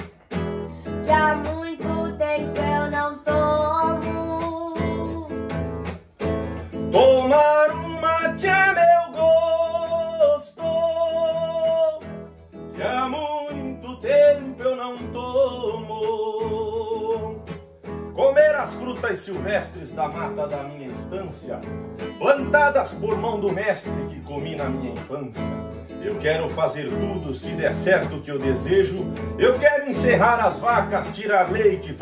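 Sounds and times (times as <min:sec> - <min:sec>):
person singing: 0:00.0 - 0:05.6, 0:06.8 - 0:12.0, 0:12.8 - 0:17.5, 0:26.0 - 0:32.0
acoustic guitar strumming: 0:00.0 - 0:32.0.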